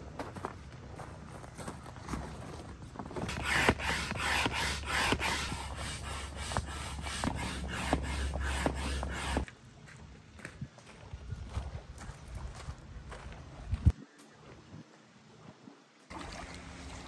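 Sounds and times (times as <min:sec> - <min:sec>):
fabric rubbing and scraping: 0:03.1 - 0:09.5
pump strokes: 0:03.2 - 0:09.5.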